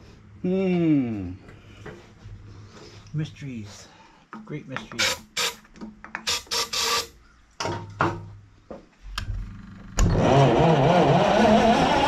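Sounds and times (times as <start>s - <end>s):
generator engine starting and running: 9.1s - 12.0s.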